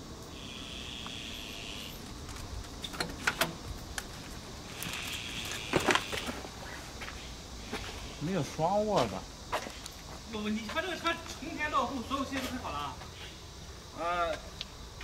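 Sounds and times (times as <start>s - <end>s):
high hiss: 0.0s - 15.0s.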